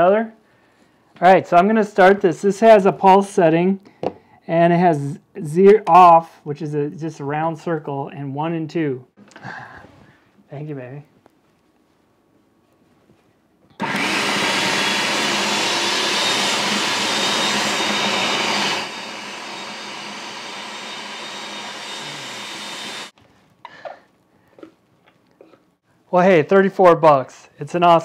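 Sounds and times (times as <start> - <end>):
food processor chopping: 13.8 - 23.1.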